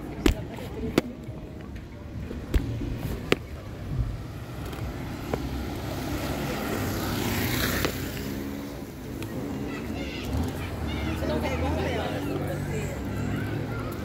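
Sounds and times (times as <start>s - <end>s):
car passing by: 4.1s - 14.0s.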